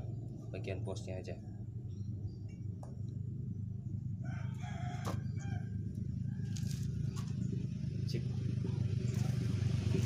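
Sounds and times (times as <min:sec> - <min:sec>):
low machine hum: 0:00.0 - 0:10.0
rooster crowing: 0:04.2 - 0:06.9.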